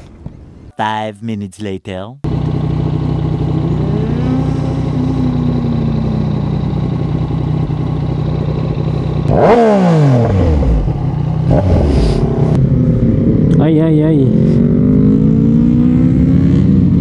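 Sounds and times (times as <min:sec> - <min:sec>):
motorcycle engine revving: 0:02.3 - 0:17.0.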